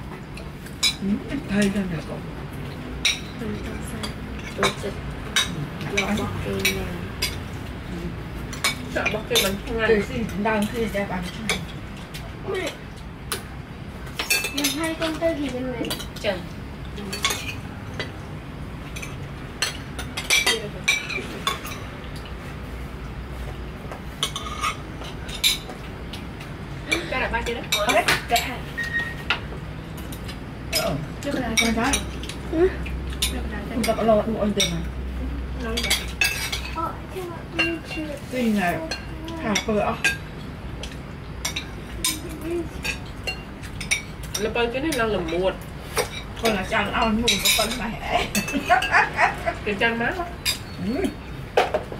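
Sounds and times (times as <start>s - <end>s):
cutlery clinking on plates: 24.1s - 32.4s, 38.7s - 49.3s.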